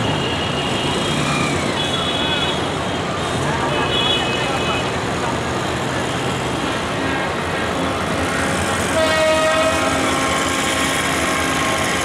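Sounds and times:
diesel locomotive engine: 0.0 - 12.0
train horn blast: 8.8 - 12.0.

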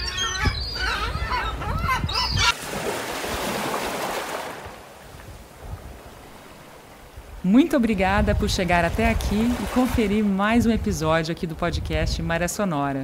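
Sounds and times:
ocean waves: 2.4 - 11.7
person speaking: 7.4 - 13.0.

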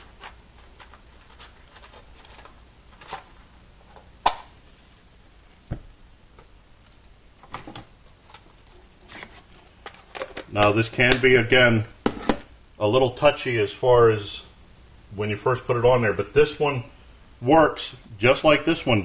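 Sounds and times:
low thump: 5.7 - 5.9.

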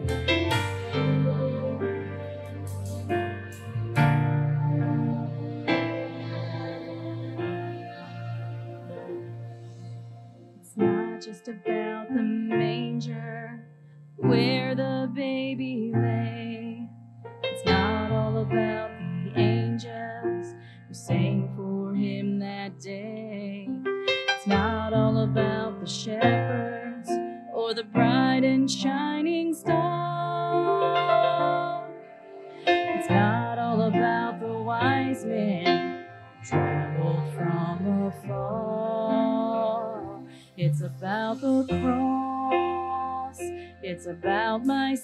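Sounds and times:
piano accompaniment: 0.0 - 45.0
woman singing worship song: 10.6 - 16.9, 17.6 - 23.8, 24.4 - 45.0.

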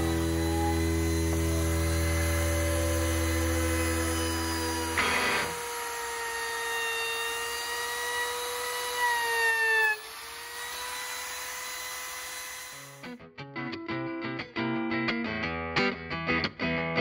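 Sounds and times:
router motor whine: 0.0 - 13.1.

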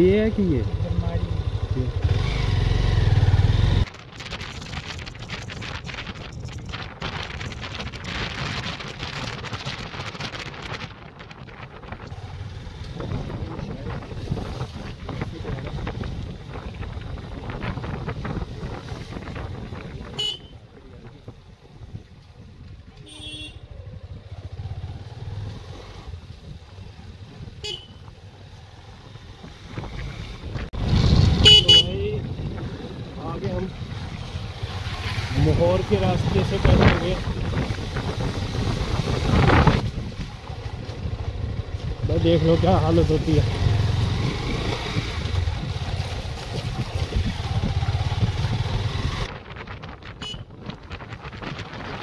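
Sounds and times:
motorcycle and road rumble: 0.0 - 52.0
wind rushing over microphone: 0.7 - 52.0
horn beep: 31.4 - 32.0.

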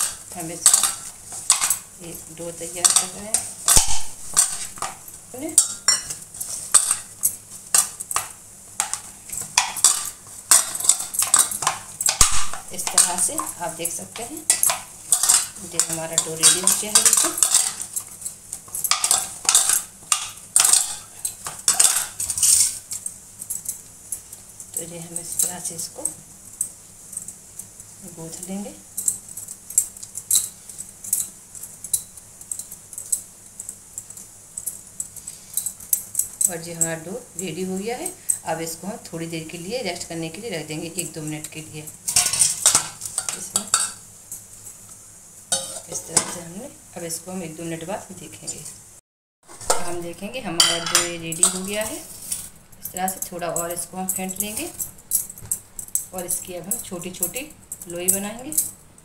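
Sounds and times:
dough kneading against steel bowl: 0.0 - 22.8
glass bangles clinking: 50.6 - 58.8.

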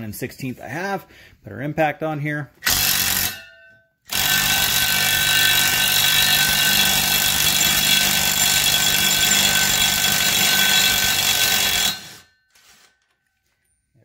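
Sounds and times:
impact wrench hammering: 2.6 - 12.3.

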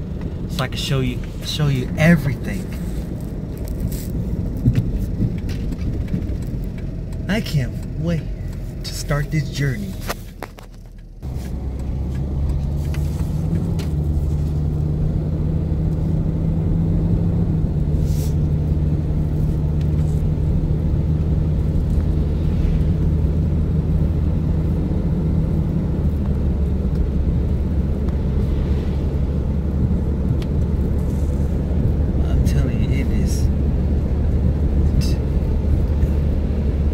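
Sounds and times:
car engine and road rumble: 0.0 - 36.9.

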